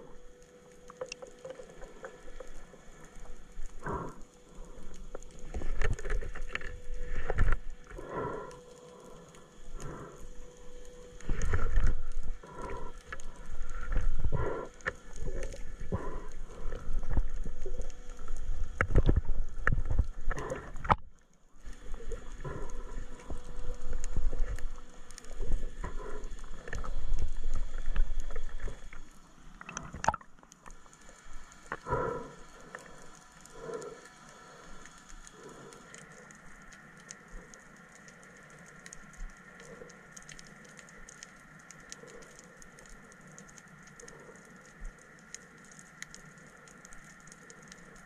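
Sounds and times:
underwater clicks: 0.7s - 48.0s.

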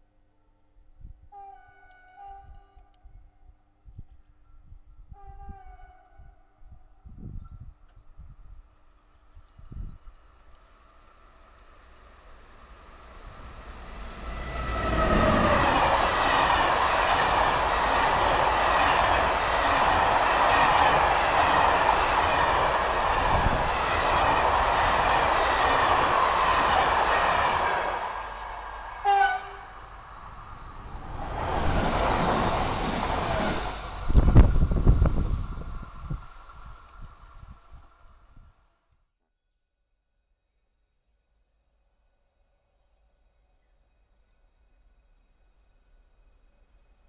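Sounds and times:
train horn blast: 1.3s - 3.1s, 5.1s - 6.6s, 13.4s - 17.1s, 27.6s - 30.0s
train passing at speed: 8.8s - 38.6s.

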